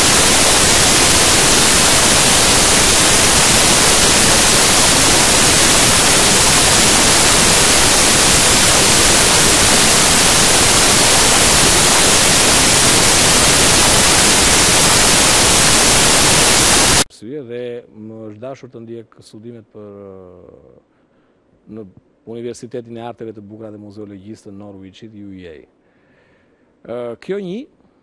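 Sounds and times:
loud static hiss: 0.0 - 17.1.

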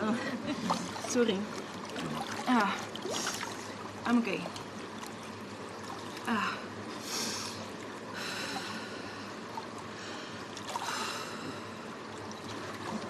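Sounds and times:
heavy hissing breaths: 6.9 - 12.0.

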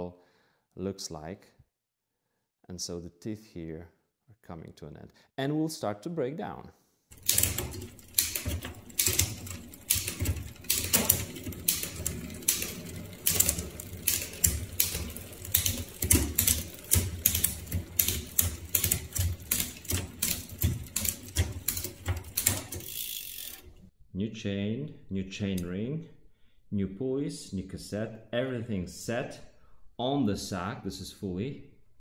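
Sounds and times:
bicycle chain clicking and clattering: 7.1 - 23.9.

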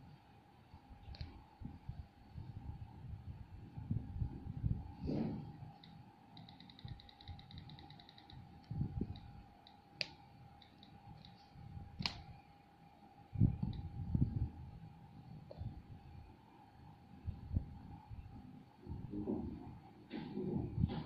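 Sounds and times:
on-screen keyboard clicks: 5.8 - 11.4.

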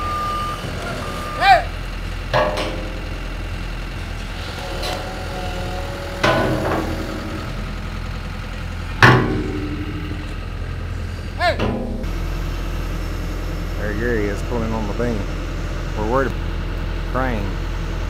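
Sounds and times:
excavator diesel engine idling: 0.0 - 18.0
steel beam clanking: 2.0 - 12.6.

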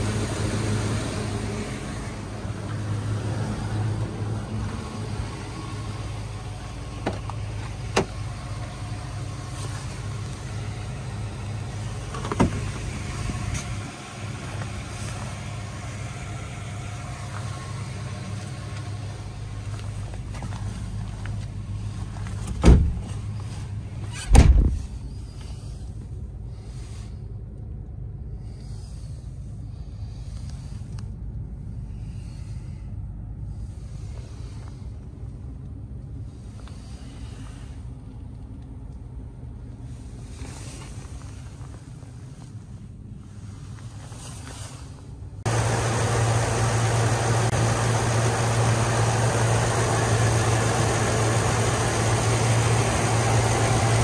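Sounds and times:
pickup engine idling: 0.0 - 22.5, 45.5 - 54.0.

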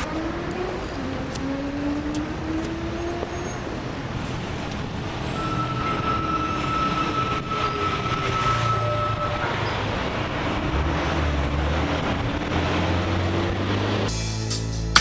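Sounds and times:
train rumbling: 0.0 - 14.4
high steady squeal: 5.2 - 10.0.

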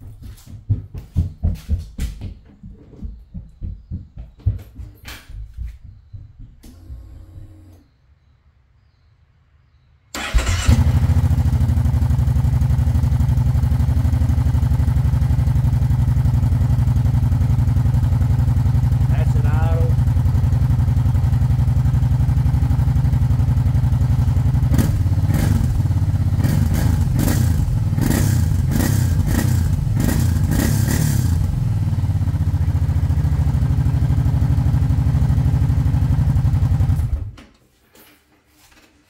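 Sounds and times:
atv engine idling and revving: 10.2 - 37.3.

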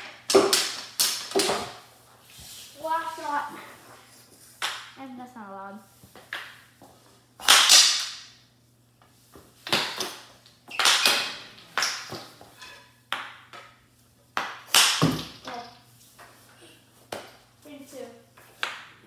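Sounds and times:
hockey sticks hitting a puck: 0.0 - 1.9, 4.6 - 5.0, 6.1 - 6.7, 7.4 - 8.4, 9.4 - 16.4, 17.0 - 17.4, 18.4 - 19.0.

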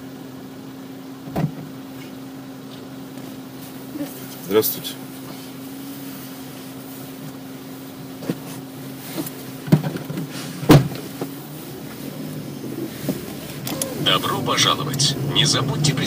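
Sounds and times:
car interior hum: 0.0 - 16.0
car door shutting: 1.2 - 2.2, 8.1 - 16.0.

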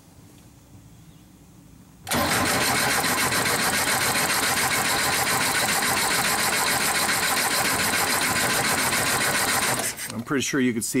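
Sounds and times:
engine cranking without starting: 2.1 - 10.4.

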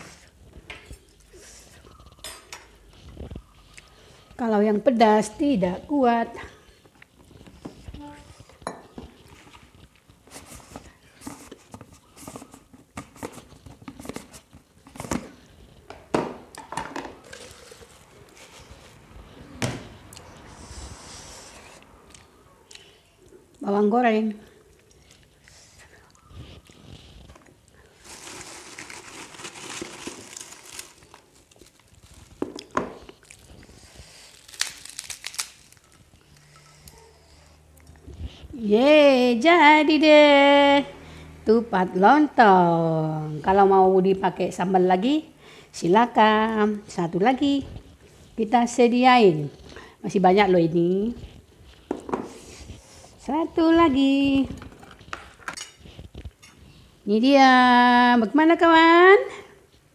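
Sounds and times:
crackers crunching: 26.4 - 36.5
packaging crinkling: 27.9 - 36.4.

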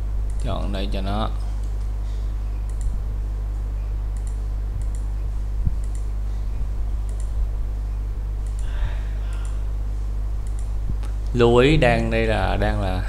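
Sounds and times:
low electrical hum: 0.0 - 13.0
computer mouse clicking: 0.2 - 0.6, 2.6 - 3.0, 4.1 - 5.1, 5.7 - 6.1, 7.0 - 7.4, 8.4 - 8.7, 9.3 - 9.6, 10.4 - 11.4.

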